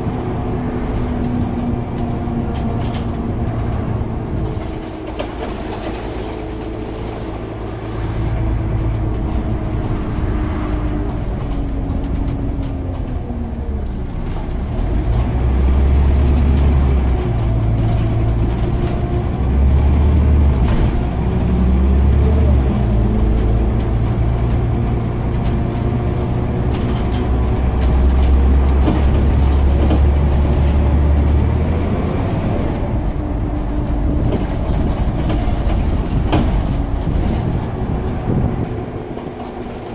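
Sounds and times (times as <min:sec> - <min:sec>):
bus diesel engine running: 0:00.0 - 0:39.9
road noise: 0:00.0 - 0:39.9.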